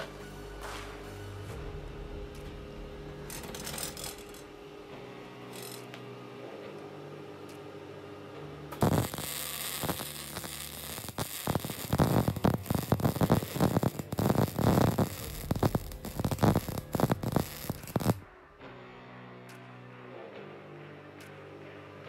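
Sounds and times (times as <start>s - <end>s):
arc welding crackle: 8.8s - 18.2s.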